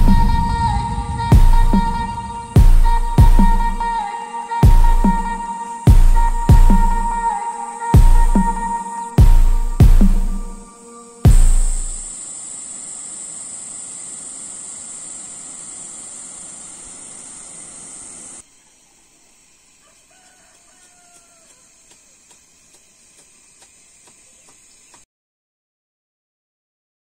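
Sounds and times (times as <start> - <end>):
loud hit: 0.0 - 4.0
rushing noise with high whine: 0.0 - 18.4
rooster crowing faintly: 19.2 - 22.3
light ticks: 20.5 - 25.0.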